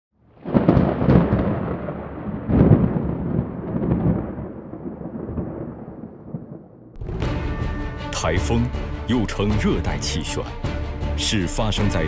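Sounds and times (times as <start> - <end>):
thunder rumbling: 0.2 - 7.6.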